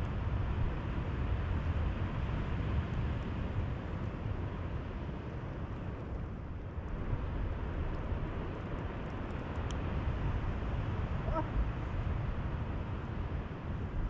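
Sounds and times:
sea: 0.0 - 14.0
wind rumble and hiss: 0.0 - 14.0
faint ticks: 7.8 - 9.9.

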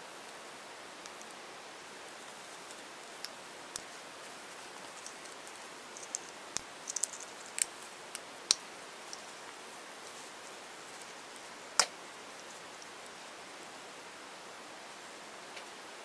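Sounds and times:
faint hiss: 0.0 - 16.0.

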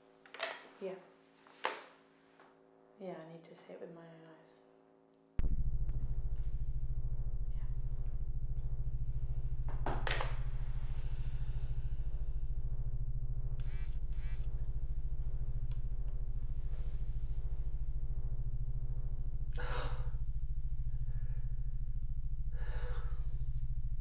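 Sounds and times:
low pulsing suspense drone: 5.4 - 24.0.

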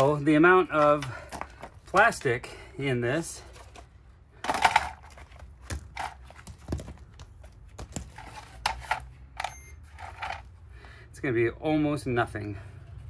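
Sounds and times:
plastic case knocks and clunks: 4.5 - 7.2.

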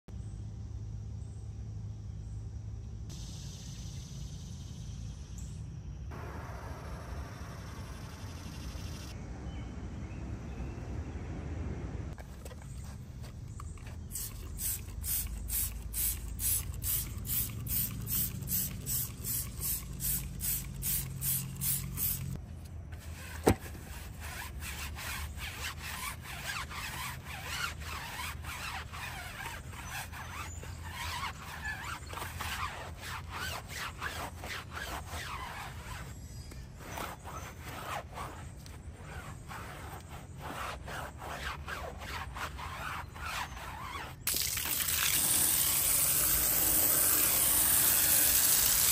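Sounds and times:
stiff brush scrubbing a tyre: 12.2 - 22.4, 23.0 - 48.9
spray bottle squirting: 13.5 - 22.4, 44.2 - 48.9.

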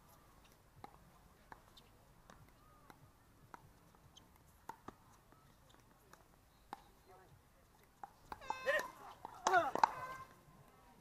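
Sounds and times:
paddles hitting plastic ball: 0.8 - 7.0, 7.8 - 10.2.

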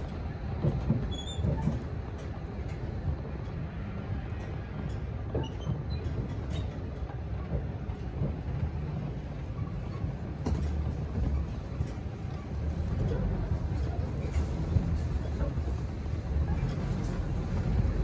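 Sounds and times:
truck engine rumbling: 10.1 - 18.0.

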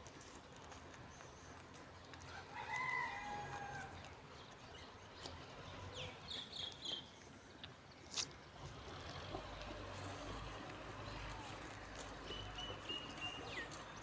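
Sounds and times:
rooster crowing: 2.3 - 4.0.

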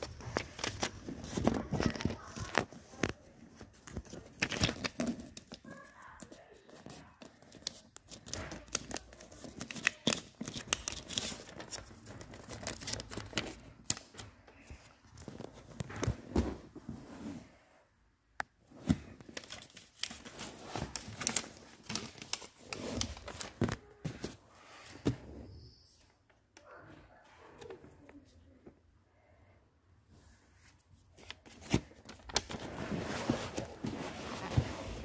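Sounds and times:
paper crackling and rustling: 0.0 - 16.5, 18.8 - 24.4.

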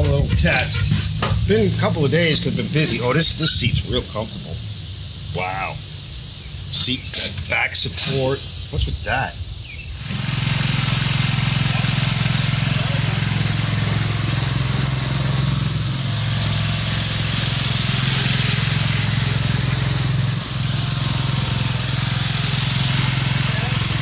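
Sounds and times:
lawn tractor engine running: 0.0 - 4.5, 9.9 - 24.0.

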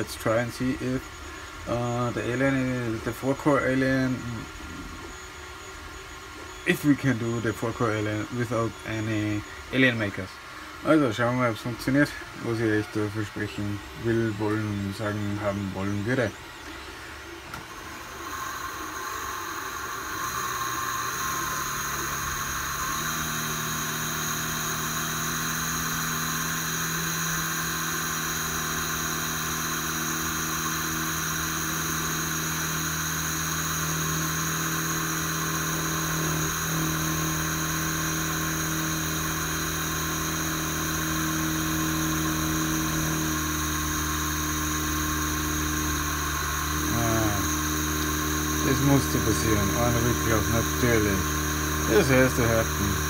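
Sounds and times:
electric drill running: 0.6 - 53.0.

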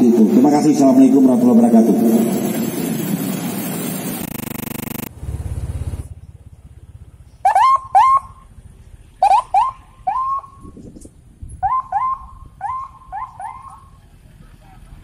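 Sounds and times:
motorcycle and car engines: 0.0 - 15.0
police siren whoops: 9.2 - 10.6.

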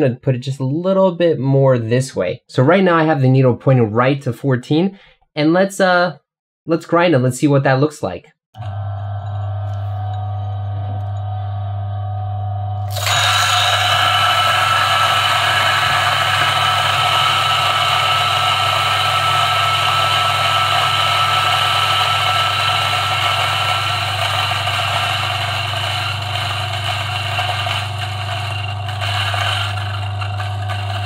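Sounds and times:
coffee grinder grinding: 8.6 - 12.0, 12.8 - 31.0.

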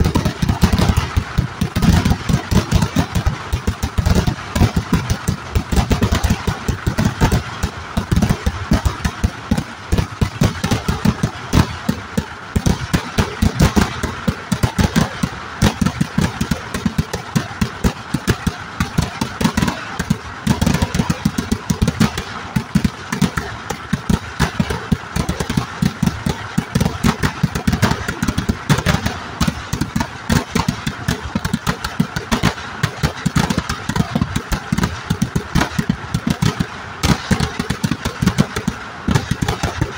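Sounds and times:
firecrackers banging rapidly: 0.0 - 39.9.

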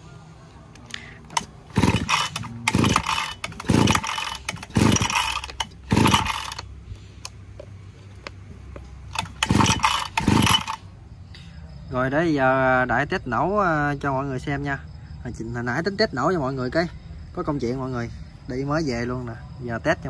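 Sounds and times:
pull-starter cord whirring: 1.3 - 6.7, 9.1 - 10.8.

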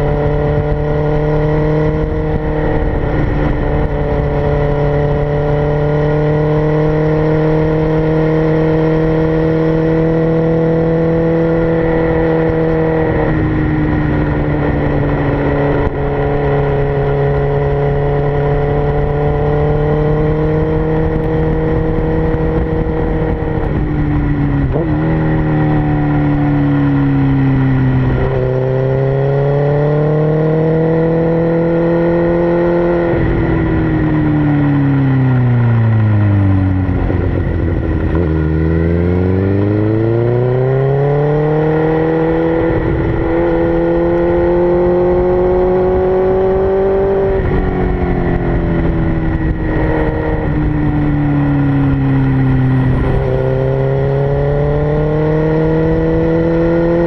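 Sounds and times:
motorcycle engine revving through gears: 0.0 - 57.0.

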